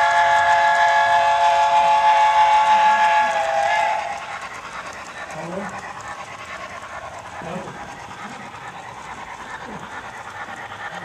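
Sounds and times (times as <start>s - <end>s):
model steam whistle blast: 0.0s - 4.2s.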